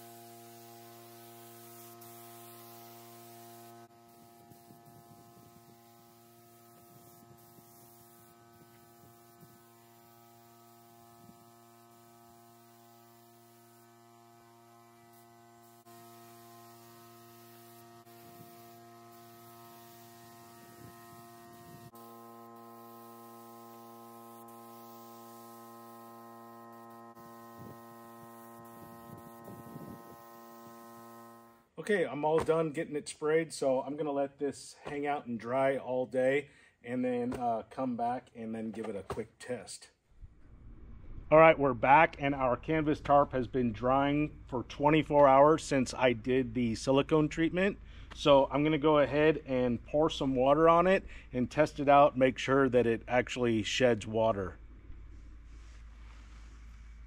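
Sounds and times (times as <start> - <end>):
faint steady hum: 40.2 - 57.0.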